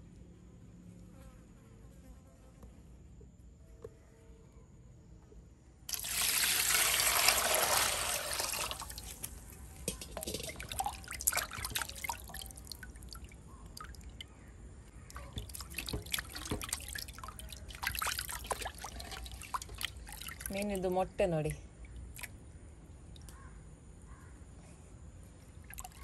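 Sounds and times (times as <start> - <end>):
water rushing into metal bowl: 5.9 - 14.0, 15.1 - 20.6
water splashes and drips: 5.9 - 14.4, 15.1 - 21.0, 21.8 - 22.4, 25.6 - 26.0.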